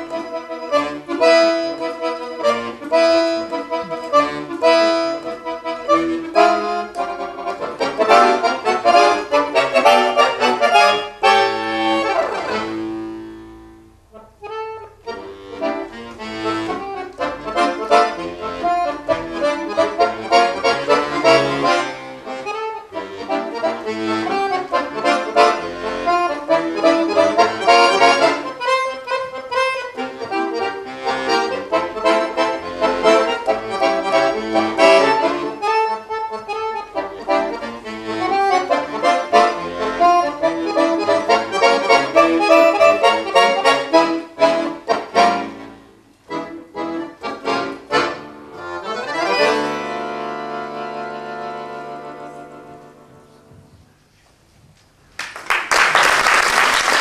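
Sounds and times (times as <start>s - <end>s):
accordion playing fast runs: 0.0s - 53.3s.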